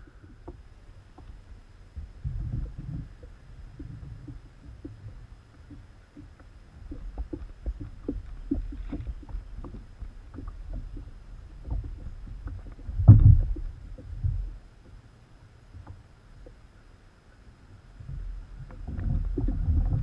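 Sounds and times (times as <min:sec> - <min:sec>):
low rumble: 0:00.0 - 0:20.0
kayak hull knocks and rattles: 0:02.0 - 0:15.0.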